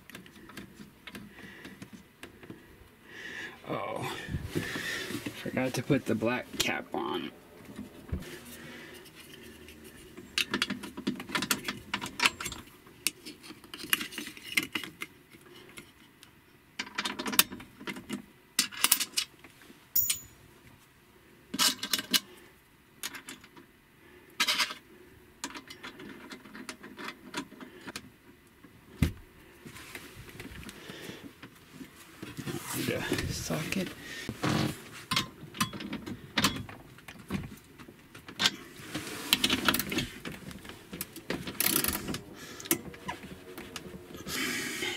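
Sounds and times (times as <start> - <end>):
metallic clinks and rattles: 20.0 - 20.4.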